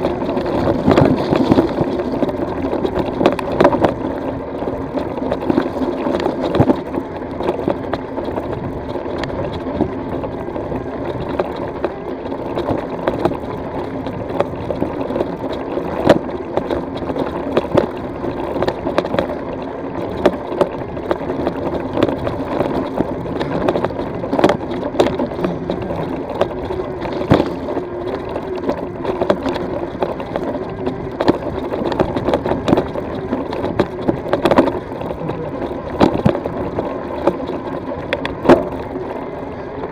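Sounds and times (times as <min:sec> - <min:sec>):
stones and bike rattling: 0:00.0 - 0:39.9.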